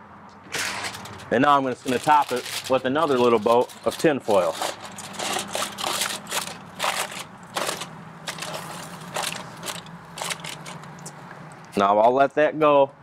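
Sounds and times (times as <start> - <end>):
aluminium foil crinkling: 0.5 - 11.2.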